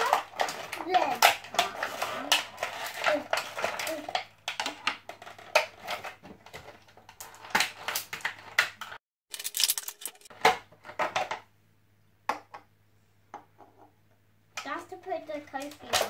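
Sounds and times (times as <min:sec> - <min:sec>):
plastic packaging crinkling: 0:09.3 - 0:10.3.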